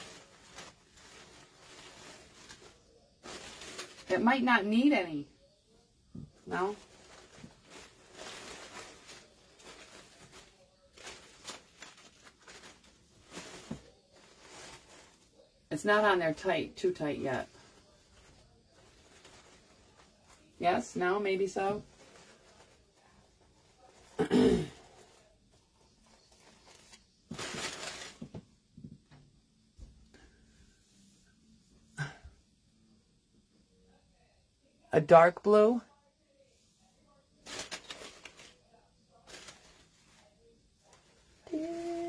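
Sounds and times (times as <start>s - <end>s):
ribbon and fabric rustling: 0.0s - 4.9s, 6.2s - 16.4s, 17.1s - 24.2s, 24.8s - 28.4s, 36.4s - 42.0s.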